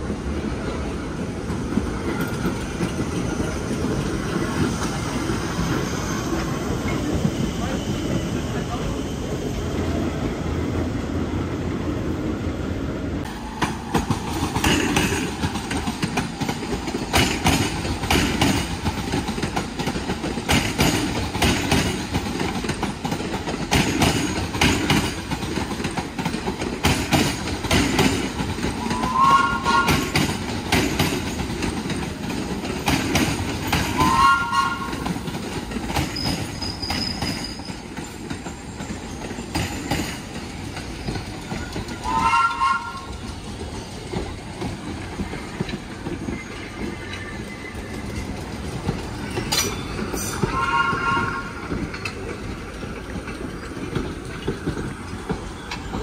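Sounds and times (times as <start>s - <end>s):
subway train rumbling: 0.0s - 56.0s
high-pitched train squeals: 2.0s - 10.2s, 28.8s - 31.1s, 33.6s - 35.2s, 36.0s - 40.3s, 40.9s - 48.4s, 49.2s - 52.2s
wheels clacking over rail joints: 13.2s - 56.0s.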